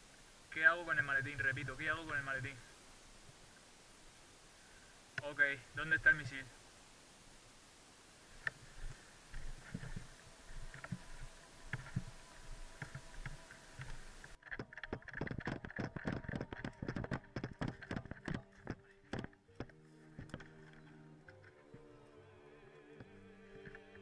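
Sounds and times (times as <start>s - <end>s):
background hiss: 0.0s - 24.0s
music: 10.0s - 14.1s, 16.0s - 24.0s
footsteps clicking and knocking: 12.9s - 20.6s.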